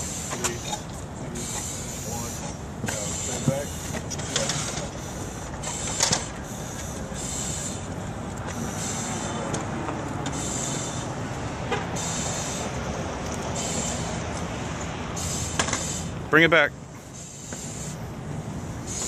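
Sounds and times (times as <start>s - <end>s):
breathing through air regulator: 4.6s - 9.5s, 10.3s - 11.1s, 12.0s - 12.8s.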